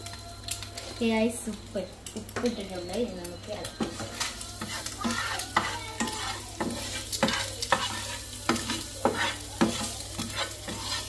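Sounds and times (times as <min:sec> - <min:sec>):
frying sizzle: 0:00.0 - 0:11.0
spatula scraping a frying pan: 0:03.6 - 0:11.0.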